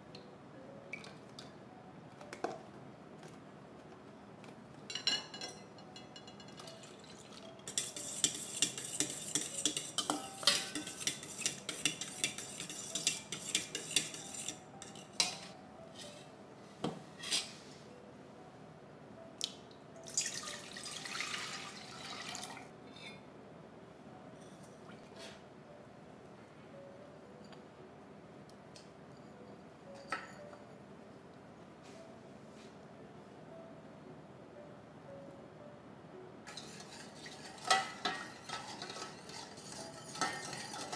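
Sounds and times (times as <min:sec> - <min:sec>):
whisk clicking against metal bowl: 0:07.7 - 0:14.6, 0:36.5 - 0:40.9.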